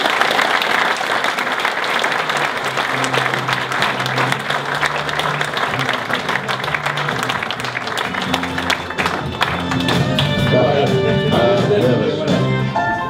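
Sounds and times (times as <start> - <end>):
audience applauding: 0.0 - 10.6
music with steady bass line: 2.7 - 13.0.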